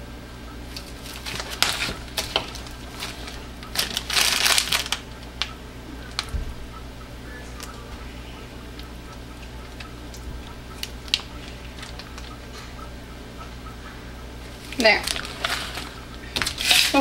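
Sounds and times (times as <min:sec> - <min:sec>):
plastic bag crinkling: 0:00.7 - 0:05.5, 0:10.8 - 0:12.3, 0:14.5 - 0:17.0.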